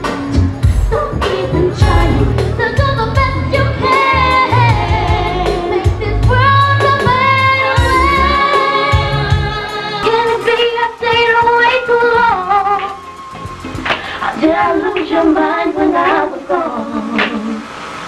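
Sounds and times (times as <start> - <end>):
bass line: 0.0 - 10.3
pop backing track: 0.0 - 17.6
girl singing: 0.8 - 13.0, 14.2 - 17.6.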